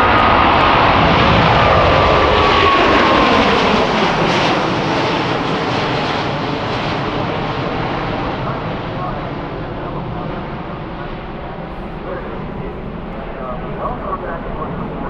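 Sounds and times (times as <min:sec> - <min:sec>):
jet engine roar: 0:00.0 - 0:15.0
jet engine whine: 0:00.0 - 0:15.0.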